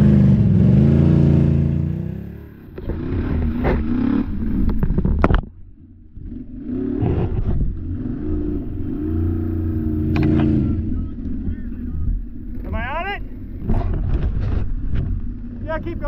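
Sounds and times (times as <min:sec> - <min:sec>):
engine revving hard: 0:00.0 - 0:04.9, 0:06.2 - 0:11.8.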